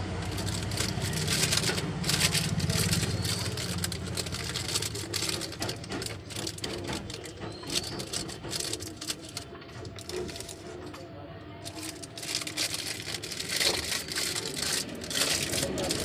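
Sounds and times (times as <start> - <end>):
plastic bag rustling: 0.0 - 10.9, 11.6 - 16.0.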